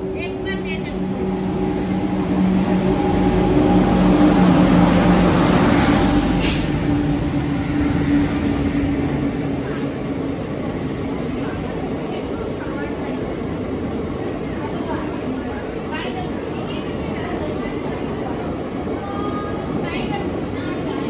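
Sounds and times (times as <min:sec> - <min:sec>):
electric train rolling past: 0:00.0 - 0:21.0.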